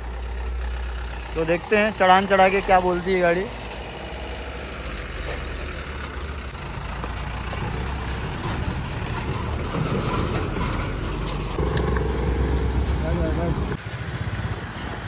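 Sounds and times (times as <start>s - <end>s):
motorcycle engine: 0.0s - 15.0s
truck diesel engine: 0.0s - 15.0s
higher engine note: 11.6s - 14.2s.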